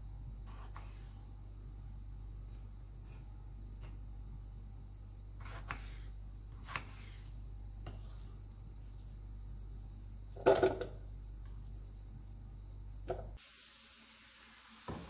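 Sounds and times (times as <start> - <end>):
knife slicing on cutting board: 5.4 - 7.3.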